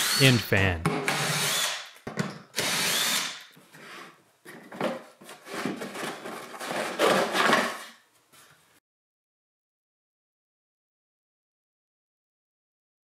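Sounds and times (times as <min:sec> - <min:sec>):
cordless drill spinning: 0:01.2 - 0:01.8, 0:02.6 - 0:03.4.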